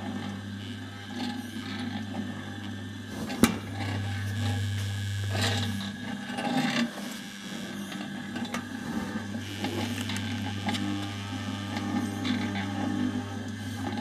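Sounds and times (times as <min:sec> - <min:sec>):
electric mixer motor humming: 0:03.4 - 0:14.0.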